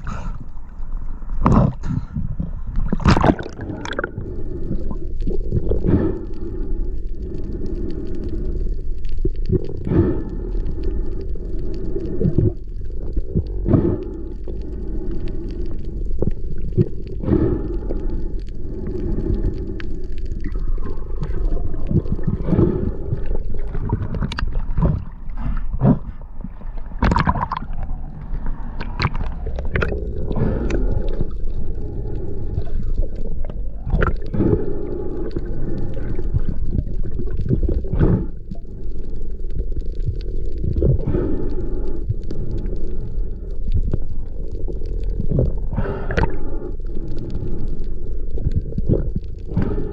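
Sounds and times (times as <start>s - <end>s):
underwater rumble of moving water: 0.0s - 49.9s
clicks knocks and gurgles: 1.4s - 4.2s, 20.4s - 31.4s, 32.6s - 34.6s.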